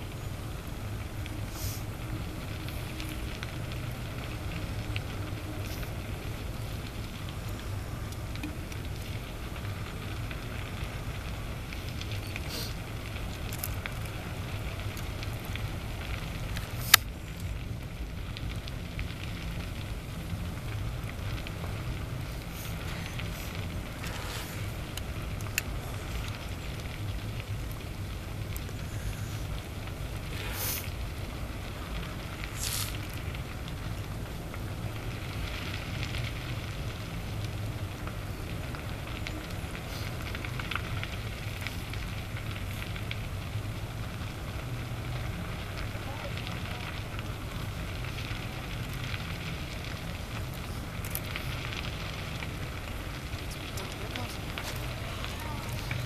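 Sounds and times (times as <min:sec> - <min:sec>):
fire crackling and popping: 0:00.0 - 0:56.0
fire rumbling: 0:00.0 - 0:56.0
short hisses: 0:12.5 - 0:12.8
loud sharp crack: 0:16.6 - 0:17.2.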